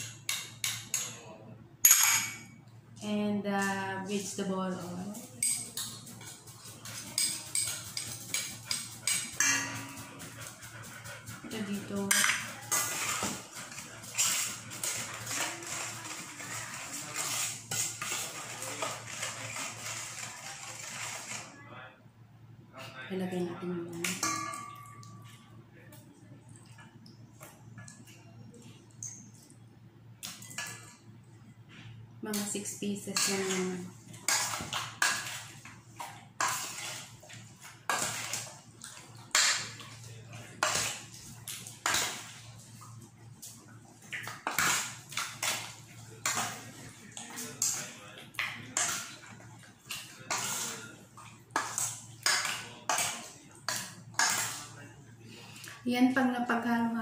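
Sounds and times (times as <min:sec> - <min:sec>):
hand mixing in metal bowl: 0:03.0 - 0:21.6, 0:23.8 - 0:25.6, 0:32.2 - 0:54.9.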